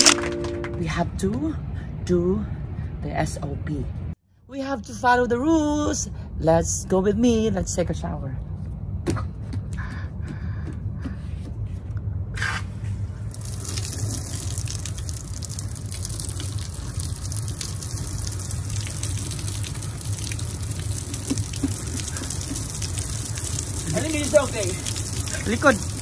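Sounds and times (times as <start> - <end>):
steady low rumble: 0.0 - 26.0
shower water spraying and splashing: 13.3 - 26.0.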